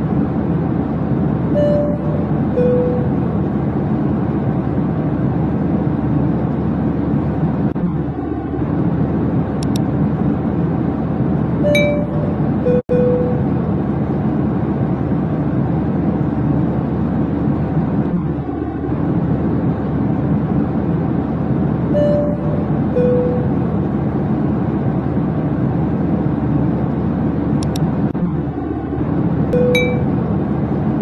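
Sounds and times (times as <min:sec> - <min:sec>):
low rumbling drone: 0:00.0 - 0:31.0
short faint tones: 0:01.6 - 0:03.2.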